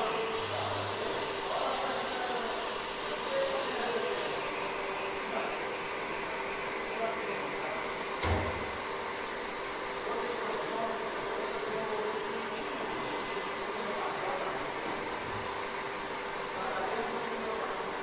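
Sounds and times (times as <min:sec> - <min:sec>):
fan hum and hiss: 0:00.0 - 0:18.0.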